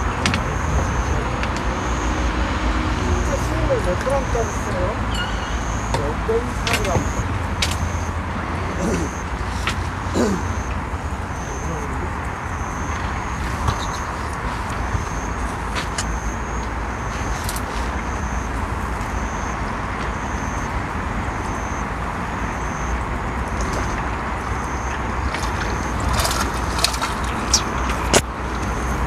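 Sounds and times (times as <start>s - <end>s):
outdoor night background noise: 0.0s - 29.0s
thin high-pitched call: 5.0s - 7.2s.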